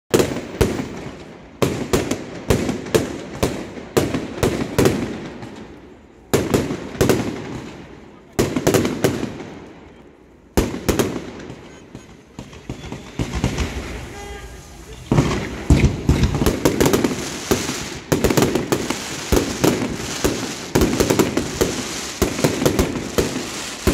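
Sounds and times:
fireworks bangs: 0.1s - 23.9s.

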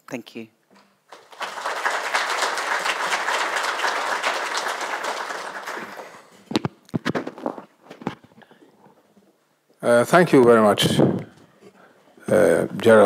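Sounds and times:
audience applauding: 1.0s - 6.4s.

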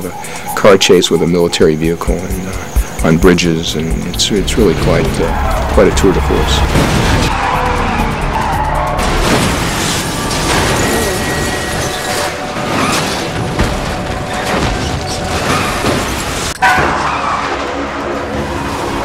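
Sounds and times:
vehicle sound effects: 0.0s - 14.4s
action film music score: 0.0s - 19.0s
loud crash: 5.5s - 8.1s, 8.8s - 17.6s.

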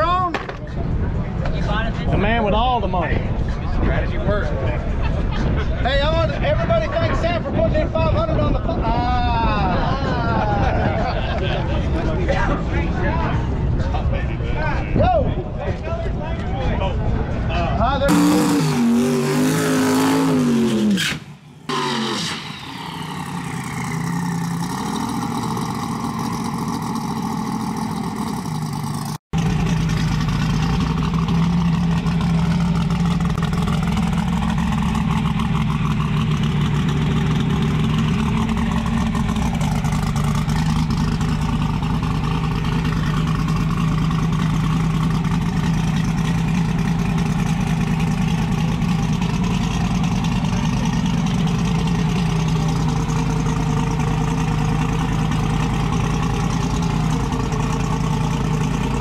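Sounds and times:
drag car engine: 17.0s - 59.0s.

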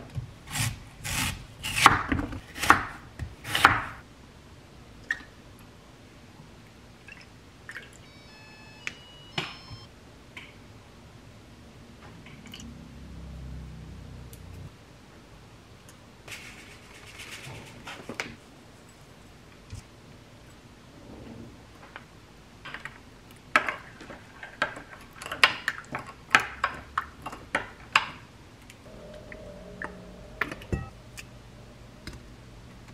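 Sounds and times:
high ringing of glass: 28.9s - 31.2s.

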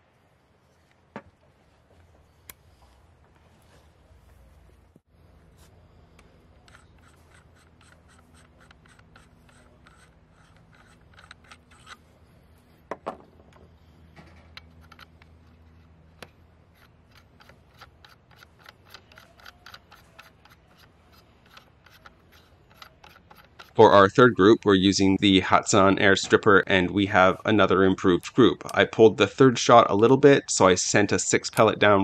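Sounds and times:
metal threads ticking and scraping: 16.7s - 23.8s.

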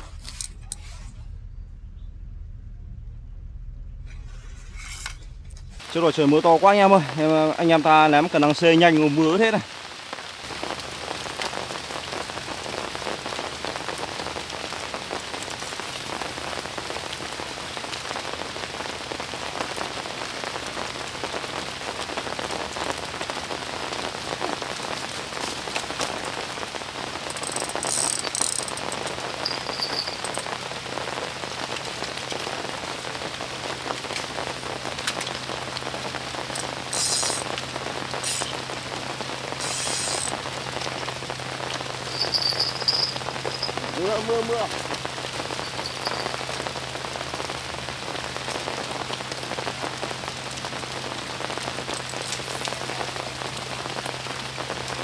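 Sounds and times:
heavy rain falling: 5.8s - 55.0s
brief high crackles: 36.6s - 37.6s, 38.2s - 38.6s, 39.6s - 40.4s.

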